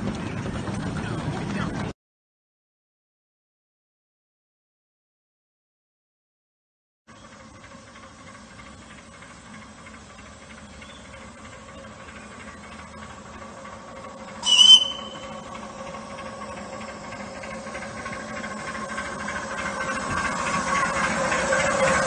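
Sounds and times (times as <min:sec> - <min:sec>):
miniature steam locomotive running: 0:07.1 - 0:22.0
high-pitched steam whistle: 0:14.4 - 0:15.5.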